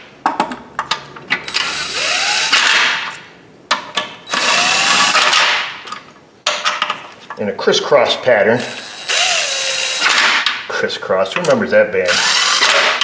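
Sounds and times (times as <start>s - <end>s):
cordless power tool whirring: 4.3s - 5.3s, 8.7s - 10.2s, 12.1s - 13.0s.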